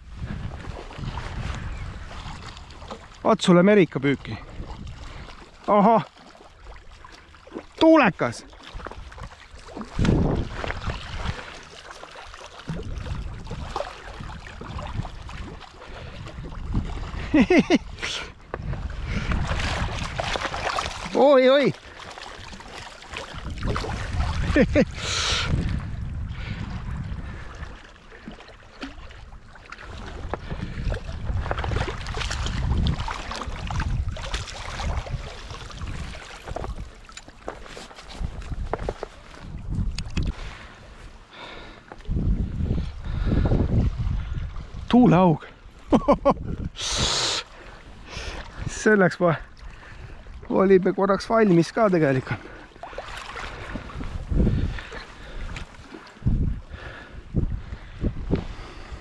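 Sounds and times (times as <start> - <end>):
wind buffeting microphone: 0.0 - 3.2, 4.0 - 5.5, 8.7 - 11.7, 12.6 - 37.1, 38.0 - 59.0
water sloshing and splashing: 0.0 - 59.0.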